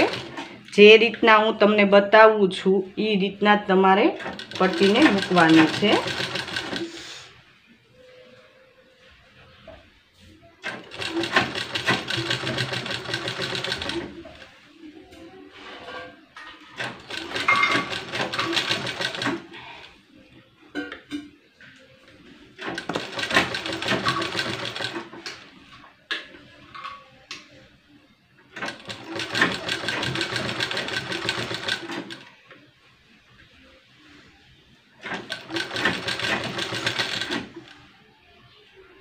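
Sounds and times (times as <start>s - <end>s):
sewing machine stitching: 0.0s - 0.5s, 4.2s - 7.1s, 10.6s - 14.4s, 16.8s - 19.6s, 22.6s - 25.3s, 28.6s - 32.3s, 35.0s - 37.7s.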